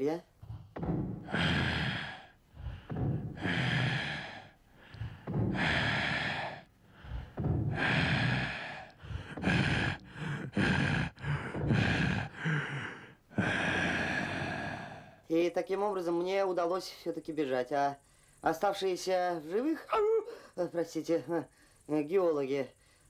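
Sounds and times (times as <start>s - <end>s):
person breathing heavily: 0.3s - 15.3s, 18.0s - 18.4s, 21.5s - 21.9s.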